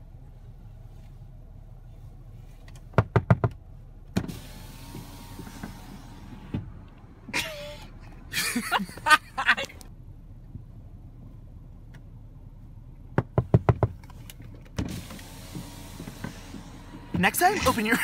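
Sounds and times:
power window motor running: 4.2s - 7.0s, 14.8s - 18.0s
man laughing: 7.3s - 9.8s.

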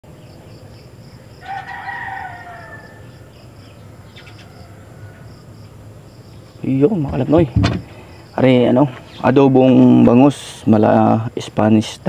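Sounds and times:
insects chirping: 0.0s - 12.0s
rooster crowing: 1.3s - 5.5s.

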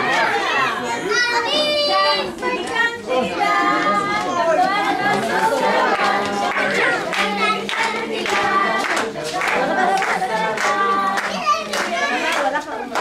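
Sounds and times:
group of voices singing: 0.0s - 13.0s
hand clapping: 5.1s - 13.0s.

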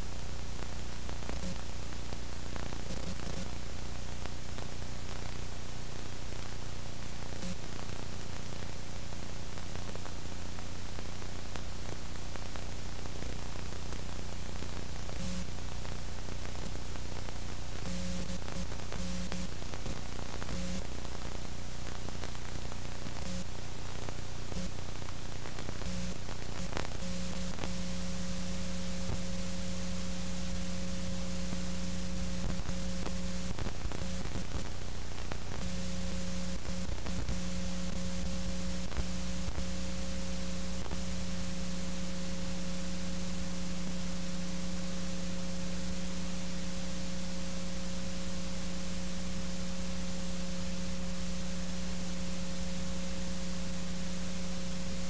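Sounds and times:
electrical hum: 0.0s - 55.0s
clicks and crackles: 32.4s - 35.8s.

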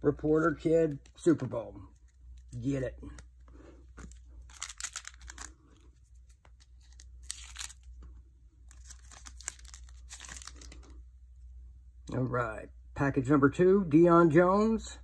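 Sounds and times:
foil wrapper tearing and crinkling: 4.4s - 5.7s, 6.6s - 7.9s, 8.7s - 10.9s.

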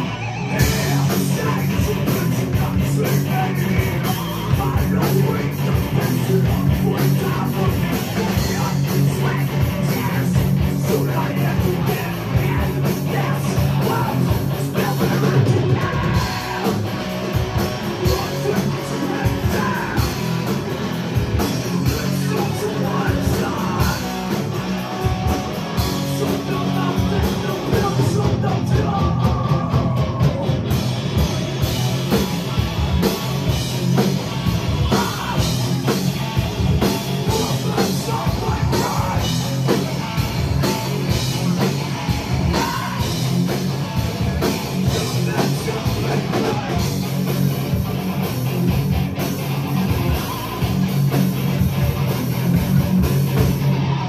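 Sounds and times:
person singing into a microphone: 0.0s - 16.8s, 21.8s - 24.3s, 26.0s - 30.5s
heavy metal band playing: 0.0s - 54.0s.

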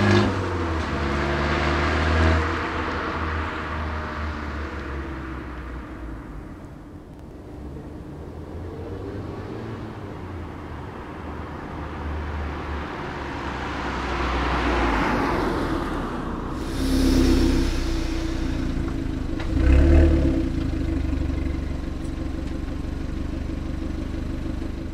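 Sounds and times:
car engine idling and revving: 0.0s - 24.9s
car driving past: 12.0s - 22.2s.

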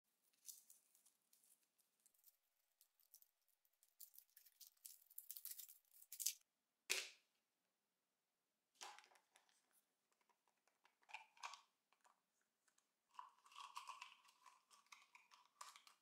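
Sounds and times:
foil wrapper crinkling: 3.9s - 6.4s.

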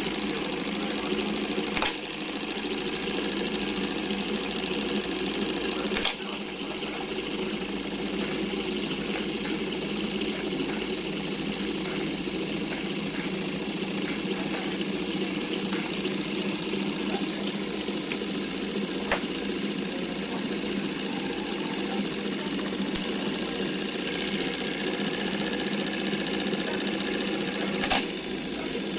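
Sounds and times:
film projector clattering: 0.0s - 28.9s
sharp click: 1.8s - 2.1s, 5.9s - 6.2s, 27.8s - 28.1s.

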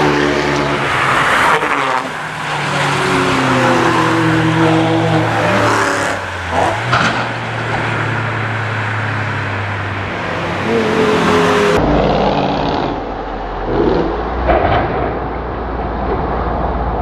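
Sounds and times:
muffled car rumble: 3.6s - 17.0s.

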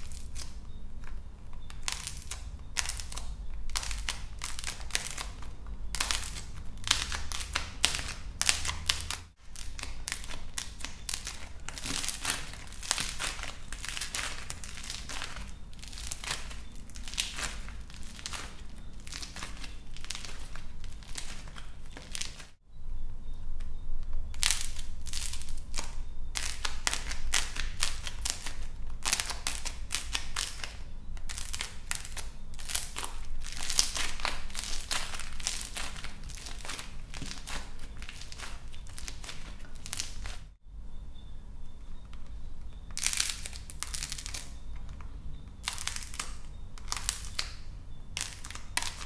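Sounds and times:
dry plaster shell cracking: 0.0s - 22.6s.

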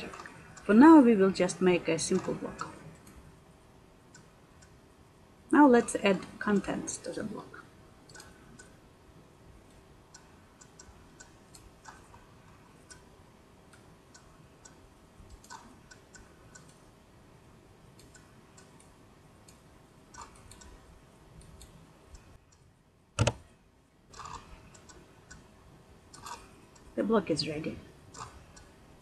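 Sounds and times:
mouse and keyboard clicks: 23.2s - 23.4s.

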